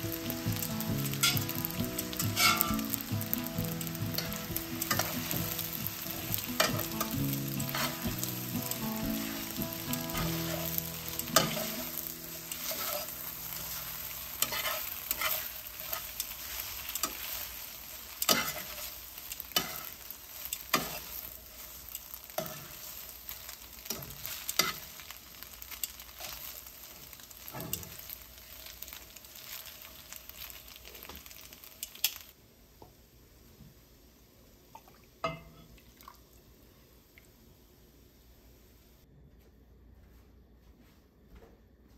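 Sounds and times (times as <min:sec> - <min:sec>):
spaghetti sizzling in a skillet: 0:00.0 - 0:32.4
metal tongs clicking against pan: 0:31.8 - 0:32.2.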